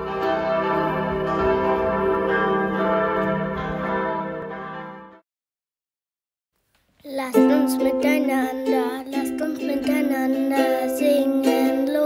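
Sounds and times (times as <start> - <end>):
church bells ringing: 0.0 - 5.2.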